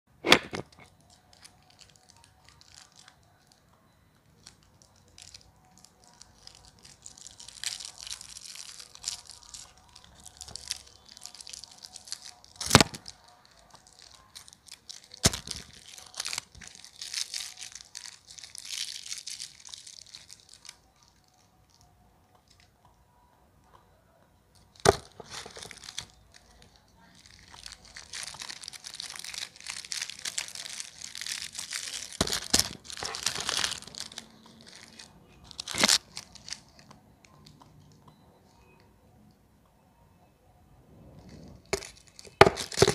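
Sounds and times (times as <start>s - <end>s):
foil wrappers crinkling: 1.0s - 3.5s, 4.4s - 21.8s, 24.7s - 36.9s, 41.3s - 42.9s.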